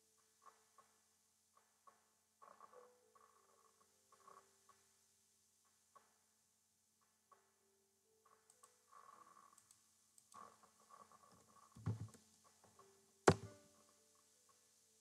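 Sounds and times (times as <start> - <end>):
computer keyboard tapping: 13.3 - 13.5.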